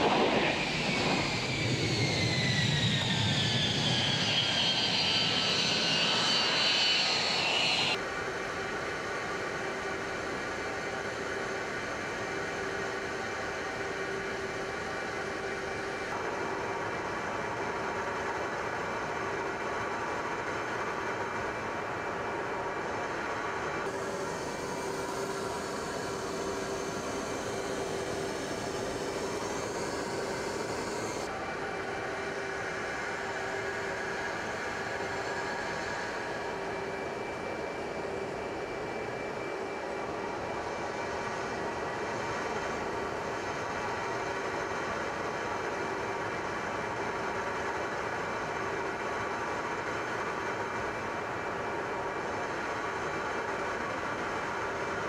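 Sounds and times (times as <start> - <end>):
aircraft cabin rushing drone: 0.0 - 8.0
aircraft engines droning: 0.0 - 55.0.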